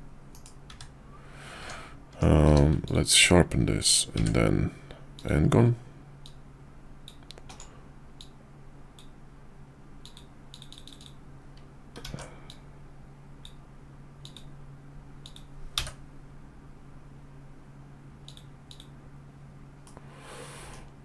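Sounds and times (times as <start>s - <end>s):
keyboard and mouse clicking: 0.3s - 0.9s, 4.2s - 4.4s, 7.1s - 8.4s, 10.0s - 11.2s, 14.2s - 14.5s, 15.2s - 16.0s, 18.2s - 18.9s.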